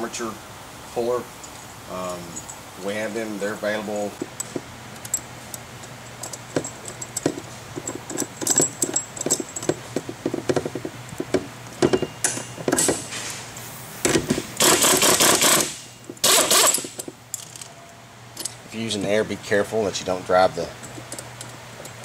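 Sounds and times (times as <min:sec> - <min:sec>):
light metal clicks and clinks: 0:01.4 - 0:02.6, 0:17.0 - 0:18.6
air tool running: 0:13.6 - 0:16.9.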